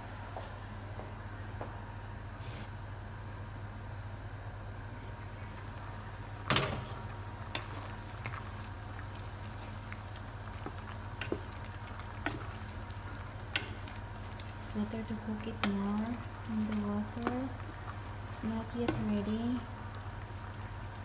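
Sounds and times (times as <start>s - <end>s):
water boiling in a pot: 4.6s - 21.0s
wooden spoon stirring in a pot: 5.1s - 21.0s.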